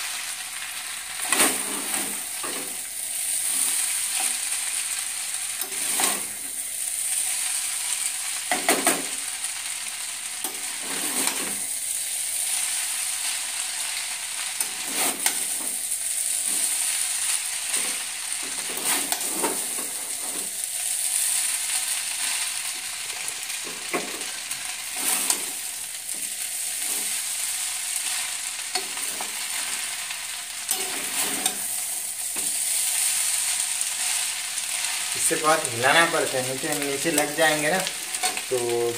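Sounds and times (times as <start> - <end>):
noodles sizzling in a pan: 0.0 - 38.9
spatula scraping and knocking pan: 10.4 - 11.6, 17.7 - 20.5, 30.7 - 31.7.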